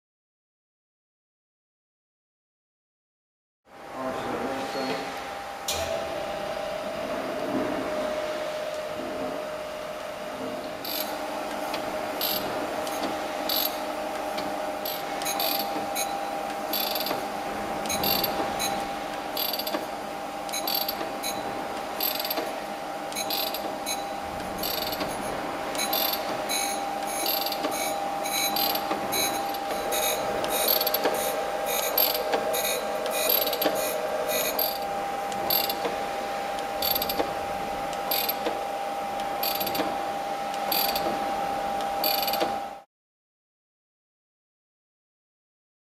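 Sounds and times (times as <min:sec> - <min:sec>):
surface grinder whine: 0:04.0 - 0:42.8
feed mechanism clicks: 0:10.0 - 0:19.9, 0:20.5 - 0:38.6, 0:39.2 - 0:41.2, 0:41.8 - 0:42.6.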